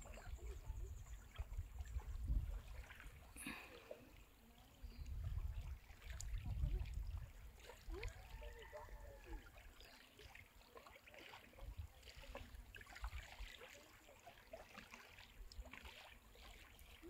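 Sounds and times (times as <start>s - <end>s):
wind rumbling on microphone: 0.0s - 3.4s, 4.8s - 9.4s
shallow water trickling and lapping: 0.0s - 17.0s.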